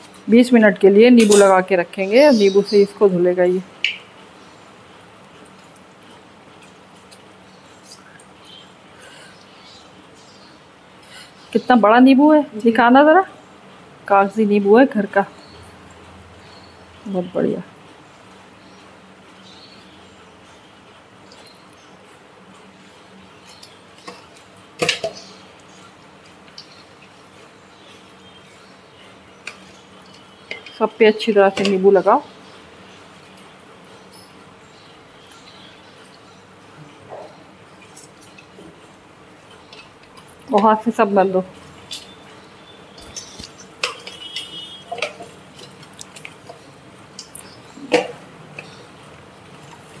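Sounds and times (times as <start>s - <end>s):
kitchen clatter: 43.0s - 46.6s
soft wet squishes: 45.2s - 50.0s.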